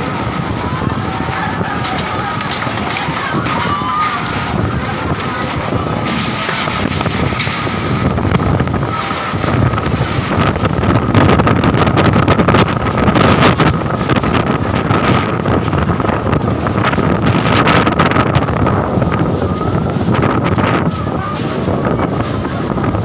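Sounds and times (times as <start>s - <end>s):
storm wind buffeting microphone: 0.0s - 23.0s
clatters and knocks: 1.4s - 16.0s.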